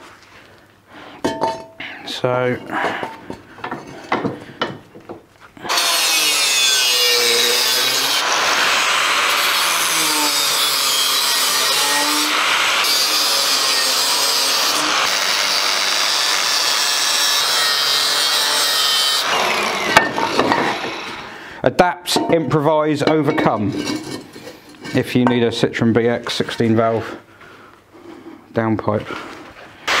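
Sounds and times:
angle grinder cutting steel: 5.7 - 21.3.

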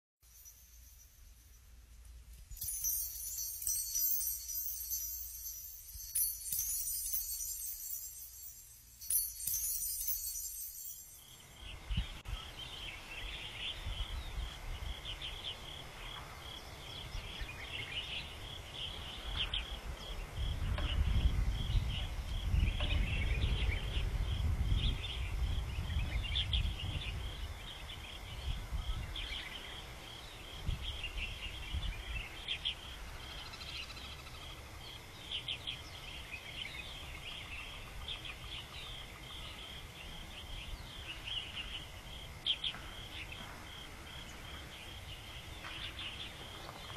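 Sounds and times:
rapid high-pitched chirping: 2.6 - 11.7.

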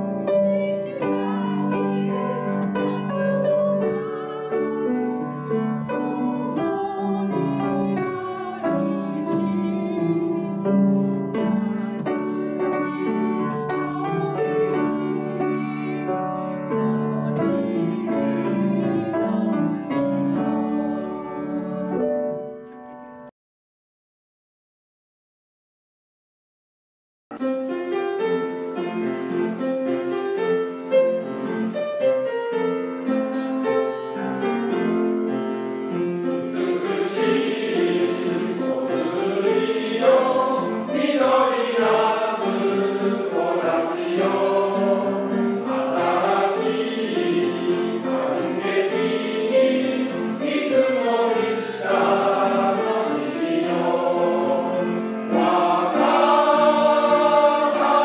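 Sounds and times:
choir singing: 0.0 - 22.0, 36.2 - 58.0
instrumental accompaniment: 27.3 - 58.0.

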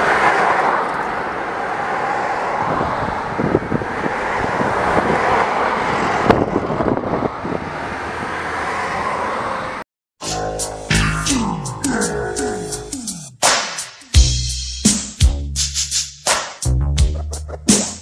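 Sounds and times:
road traffic driving past: 0.0 - 9.8.

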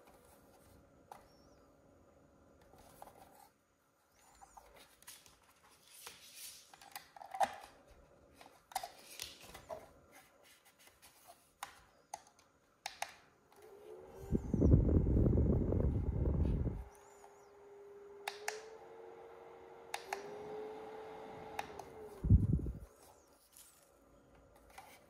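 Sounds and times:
fan whine: 13.4 - 25.0
fan airflow hitting microphone: 14.0 - 16.9, 18.3 - 22.9.

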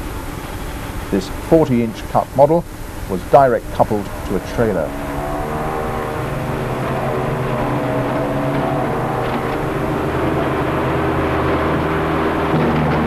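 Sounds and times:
tractor and harvester droning: 0.0 - 13.0.

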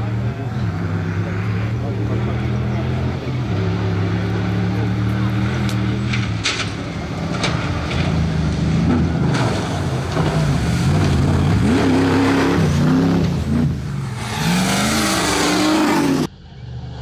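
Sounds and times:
race engines revving: 0.0 - 16.9.

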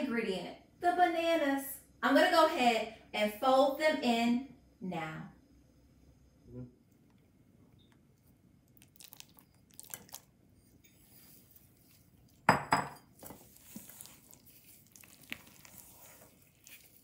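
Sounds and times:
spatula folding thick batter: 9.9 - 17.0.

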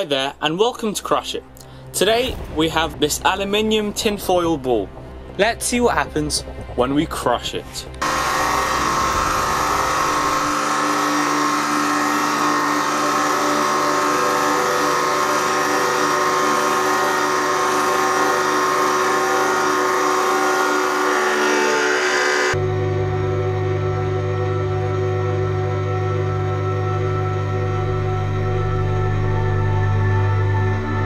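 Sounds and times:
hydraulic pump whining: 8.0 - 22.6.

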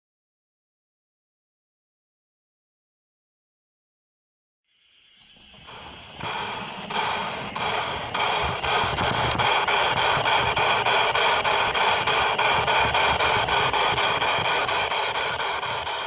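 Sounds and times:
electric motor and gear whine: 4.7 - 16.0
track clicks: 5.1 - 16.0
metal wheels rumbling on track: 5.3 - 16.0.

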